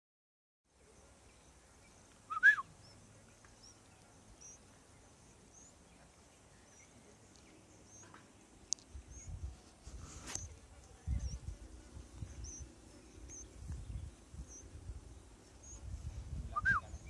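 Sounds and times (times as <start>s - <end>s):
faint high chirps: 0.7s - 9.5s.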